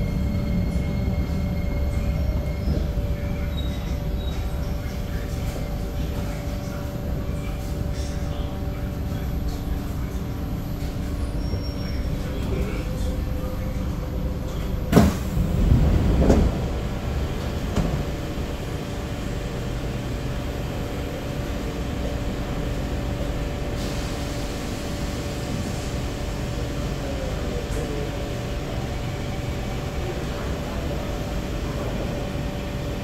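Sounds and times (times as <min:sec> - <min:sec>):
train ventilation hum: 0:00.0 - 0:33.0
train doors thudding: 0:14.5 - 0:18.6.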